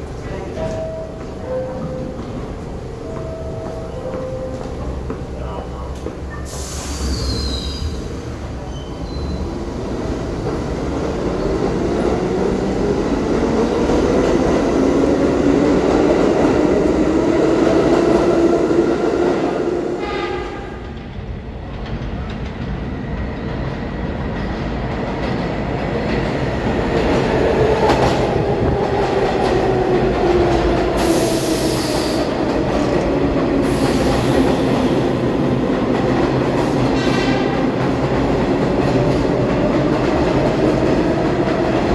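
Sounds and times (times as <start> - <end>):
subway motors whining: 0.0 - 41.9
train rumble and rail clatter: 0.0 - 41.9
air hiss: 6.5 - 8.0.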